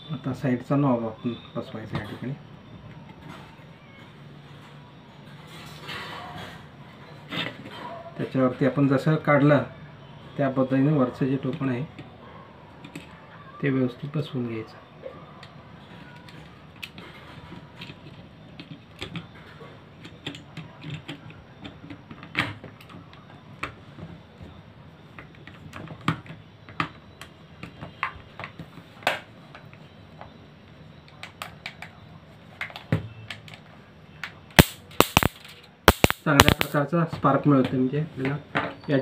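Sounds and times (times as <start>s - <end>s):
plastic parts clicking and tapping: 17.8s - 19.4s, 20.0s - 23.8s, 34.2s - 36.8s.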